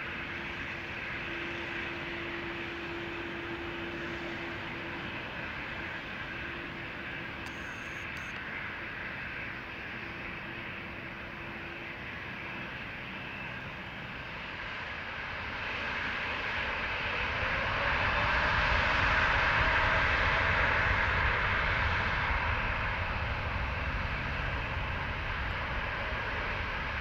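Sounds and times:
jet engines at takeoff power: 0:00.0 - 0:27.0
faint rising whine: 0:02.4 - 0:08.4.

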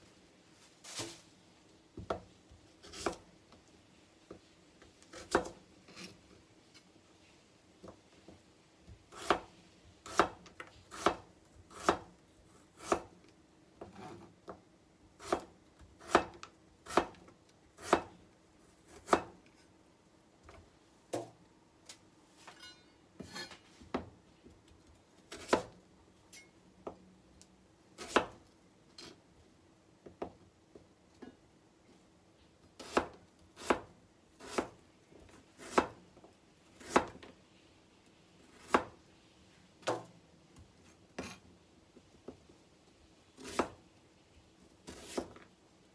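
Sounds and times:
knife chopping on cutting board: 0:02.8 - 0:03.2, 0:10.1 - 0:12.1, 0:12.8 - 0:13.1, 0:15.2 - 0:17.2, 0:17.8 - 0:18.1, 0:18.9 - 0:19.3, 0:25.3 - 0:25.8, 0:32.8 - 0:34.8, 0:35.6 - 0:36.0, 0:36.8 - 0:37.2, 0:38.6 - 0:38.9, 0:43.4 - 0:43.8, 0:44.9 - 0:45.4.

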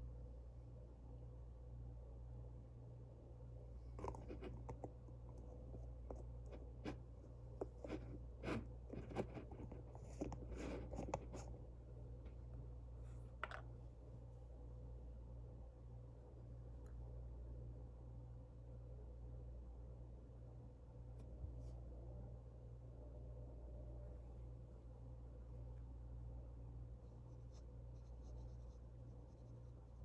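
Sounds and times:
faint steady hum: 0:00.0 - 0:30.0
scratchy rustles of handling: 0:04.0 - 0:11.6.

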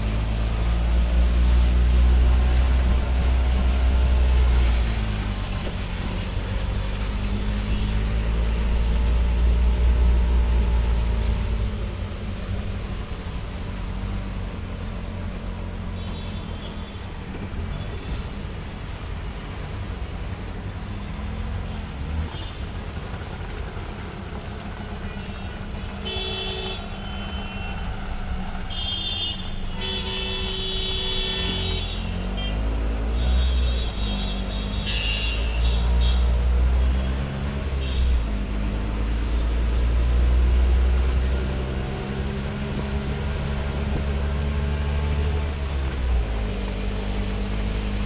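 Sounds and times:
auto-rickshaw engine rumbling: 0:00.0 - 0:48.0
vehicle horns honking: 0:26.0 - 0:27.9, 0:28.7 - 0:37.2.

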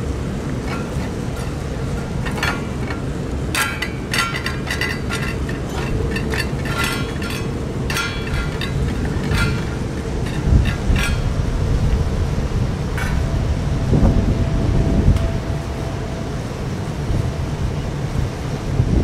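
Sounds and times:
wind rumble on microphone: 0:00.0 - 0:19.0
metal dishes clinking: 0:00.6 - 0:12.1, 0:12.9 - 0:13.4.

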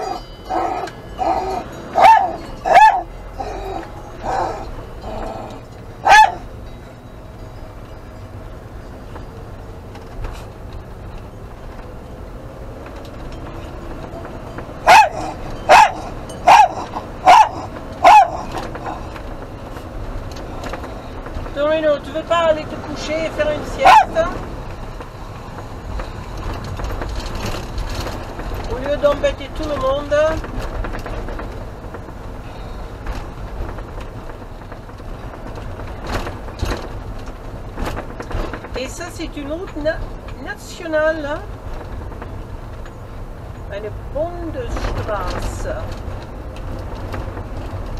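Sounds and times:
dog barking loudly: 0:00.0 - 0:04.7, 0:06.0 - 0:06.5, 0:14.8 - 0:19.0, 0:23.8 - 0:24.4
van engine and road noise: 0:00.0 - 0:47.9.

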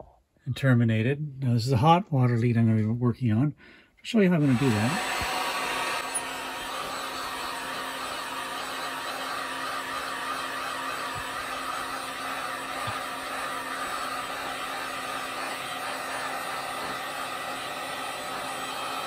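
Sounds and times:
heat gun blowing: 0:04.3 - 0:19.0.

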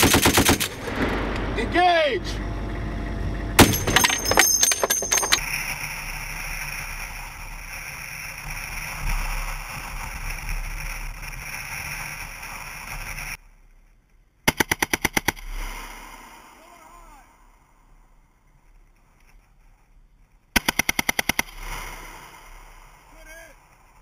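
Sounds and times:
heavy machine gun burst: 0:00.0 - 0:01.9, 0:03.6 - 0:05.4
vehicle running with high whine: 0:00.2 - 0:13.4.

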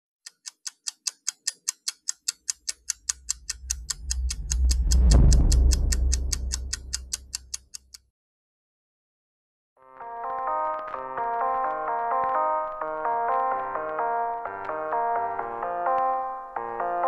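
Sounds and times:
clock-like ticking: 0:00.2 - 0:08.1
deep low swell: 0:03.0 - 0:07.5.

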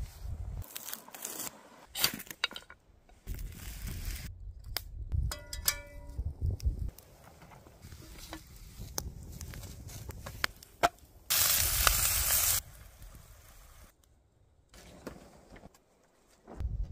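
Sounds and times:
fire crackling: 0:06.2 - 0:14.3
meat sizzling in a pan: 0:11.3 - 0:12.6.

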